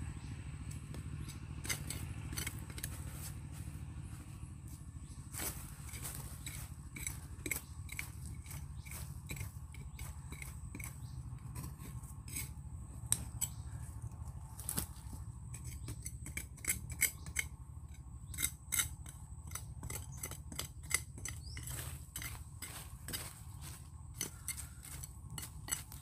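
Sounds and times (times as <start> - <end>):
digging scrapes in soil: 1.2 - 3.7, 5.4 - 13.9, 19.8 - 26.0.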